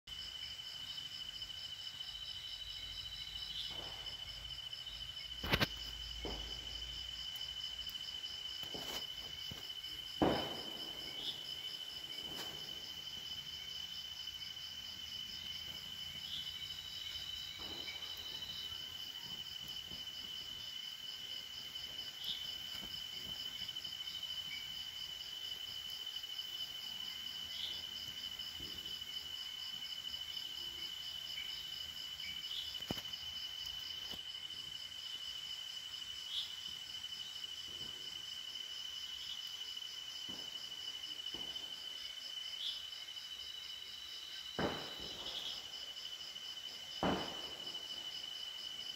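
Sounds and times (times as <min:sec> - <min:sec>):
night insects trilling: 0:00.1 - 0:48.9
burning fibre crackling: 0:02.4 - 0:24.5
sharp crack: 0:05.4 - 0:06.7, 0:08.6 - 0:12.6, 0:47.0 - 0:47.6.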